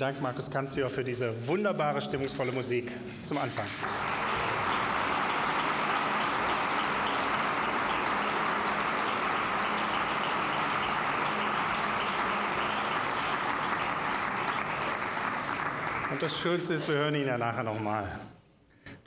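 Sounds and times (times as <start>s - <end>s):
audience applauding: 3.3s - 17.9s.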